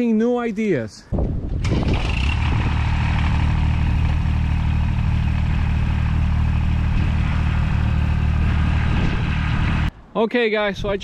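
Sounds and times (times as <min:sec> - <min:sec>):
tractor diesel engine running: 0:01.5 - 0:09.9.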